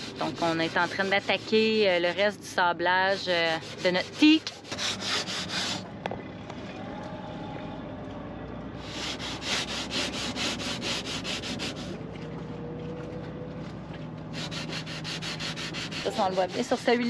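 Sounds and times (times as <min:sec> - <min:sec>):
sandpaper rubbing on wood: 0:03.1 - 0:05.8, 0:08.9 - 0:11.9, 0:14.4 - 0:17.0.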